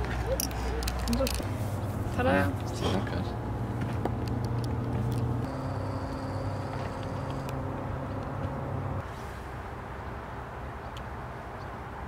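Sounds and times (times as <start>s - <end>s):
low mechanical hum: 0.0s - 9.1s.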